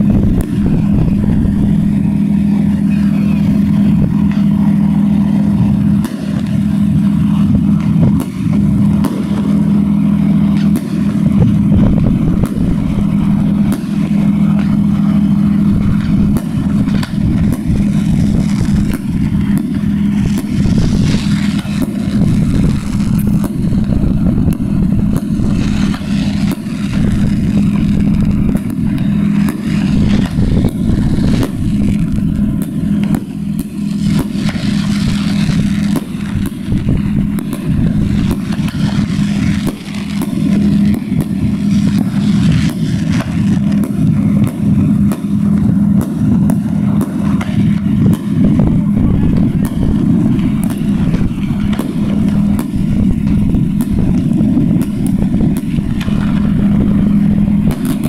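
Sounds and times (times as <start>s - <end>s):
fireworks cracking and popping: 0.0s - 58.0s
low rumble: 0.0s - 58.0s.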